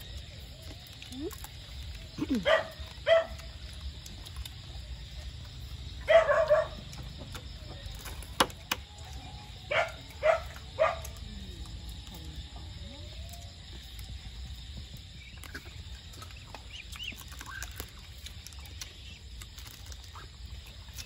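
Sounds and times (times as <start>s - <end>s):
dog barking: 2.3s - 3.5s, 6.0s - 7.0s, 9.7s - 11.2s.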